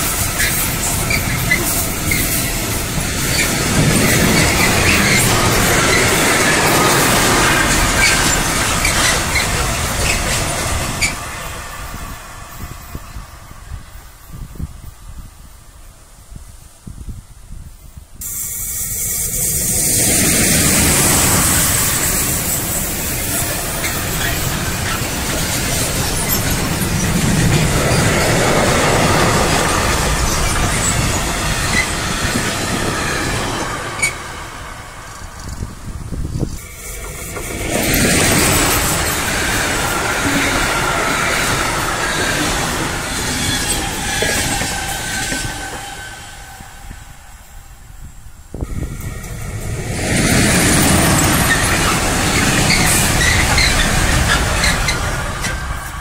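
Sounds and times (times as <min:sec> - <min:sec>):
freight train wheels on rails: 0:00.0 - 0:56.0
wheel squeals and clicks: 0:00.4 - 0:11.2, 0:21.0 - 0:34.3, 0:41.3 - 0:46.4, 0:50.2 - 0:56.0.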